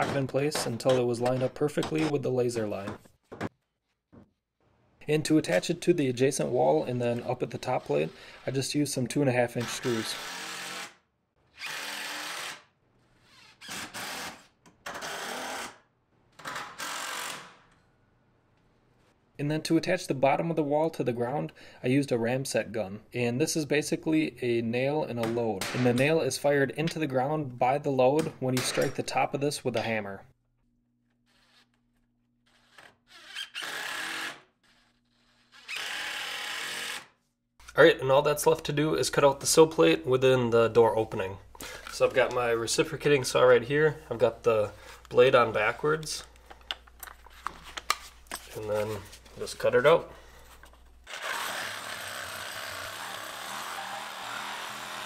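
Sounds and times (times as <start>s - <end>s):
cordless drill driving screws into wood: 9.7s - 11.0s, 11.6s - 12.7s, 13.3s - 15.8s, 16.4s - 17.7s, 32.5s - 37.1s, 51.0s - 55.0s.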